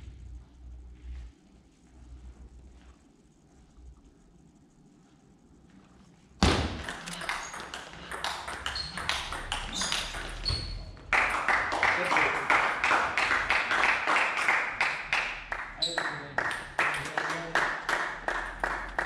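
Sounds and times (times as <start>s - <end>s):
table tennis ball clicking: 6.8s - 10.6s
spectators clapping: 6.9s - 10.4s, 11.0s - 19.0s.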